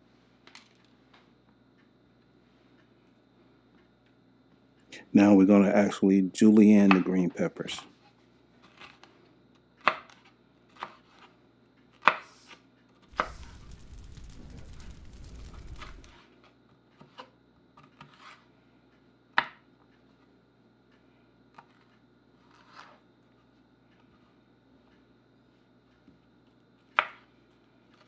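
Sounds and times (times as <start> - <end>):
rushing noise with low rumble: 13.1 - 16.2.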